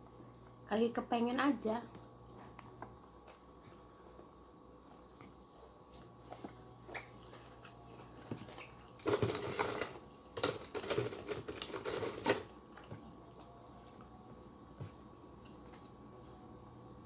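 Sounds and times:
food packaging crinkling: 0:06.9 - 0:12.9.

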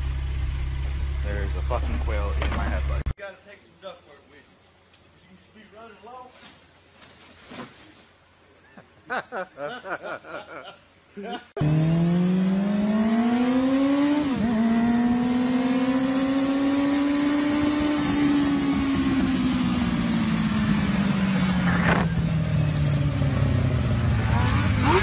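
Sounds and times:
motorcycle engine at high revs: 0:11.6 - 0:25.0.

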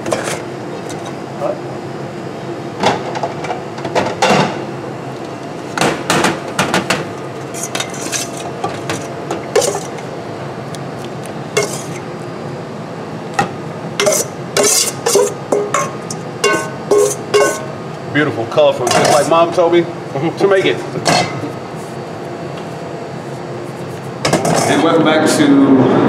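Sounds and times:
bowls and utensil clanking: 0:07.4 - 0:10.1, 0:11.6 - 0:12.0, 0:13.4 - 0:17.7, 0:18.8 - 0:19.3, 0:24.2 - 0:24.9
metal blade clanking in steel bowl: 0:11.6 - 0:12.0, 0:14.0 - 0:17.7.

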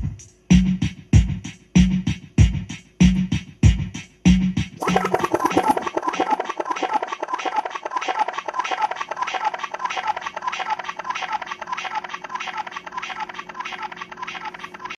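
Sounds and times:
stuttering chopped sample: 0:04.4 - 0:14.9.

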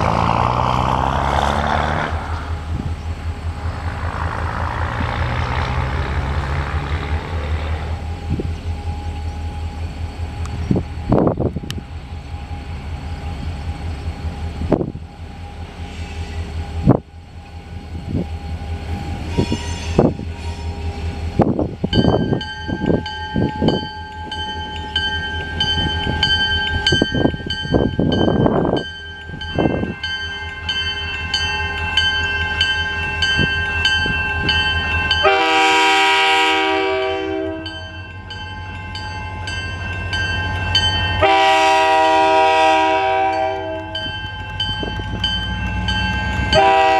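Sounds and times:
locomotive engine rumble: 0:00.0 - 0:46.9
locomotive horn blasts: 0:19.3 - 0:20.8, 0:35.2 - 0:38.0, 0:41.2 - 0:44.1, 0:46.5 - 0:46.9
crossing bell ringing: 0:21.8 - 0:46.9.

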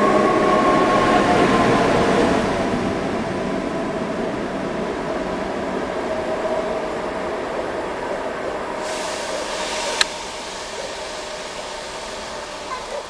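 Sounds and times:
train running by: 0:00.0 - 0:13.0
hiss: 0:08.7 - 0:13.0.

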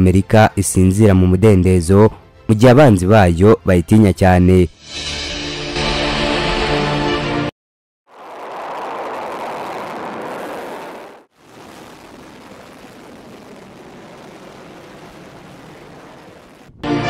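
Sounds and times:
rocket motor rushing: 0:08.1 - 0:16.7.

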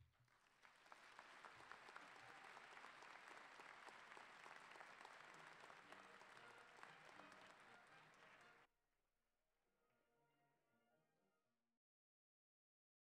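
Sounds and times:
faint audience applause: 0:00.0 - 0:08.7.

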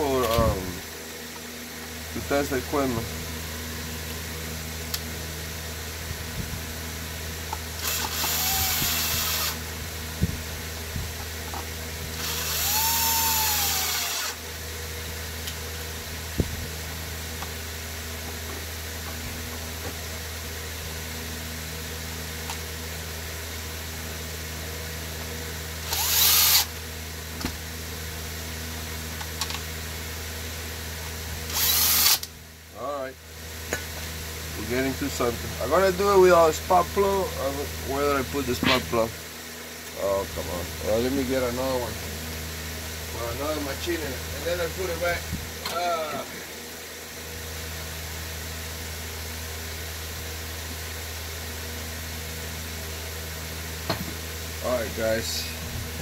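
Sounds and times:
cordless drill spinning: 0:07.5 - 0:09.7, 0:12.1 - 0:14.4, 0:25.8 - 0:26.8, 0:31.5 - 0:32.3.

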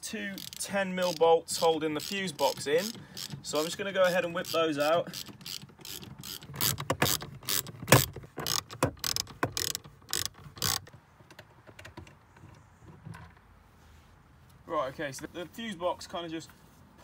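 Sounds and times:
socket ratchet clicking: 0:00.4 - 0:10.9.

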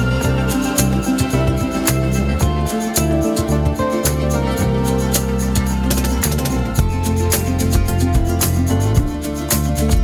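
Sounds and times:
bass and keyboard music: 0:00.0 - 0:10.0
percussion hits: 0:05.0 - 0:10.0.

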